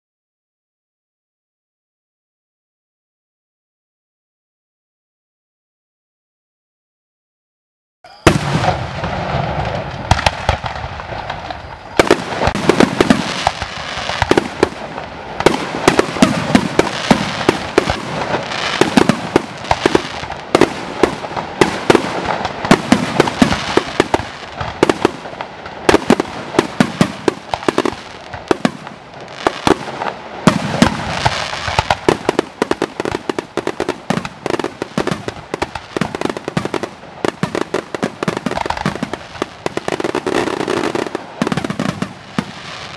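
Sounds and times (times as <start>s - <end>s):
fireworks bangs and crackling: 8.2s - 42.9s.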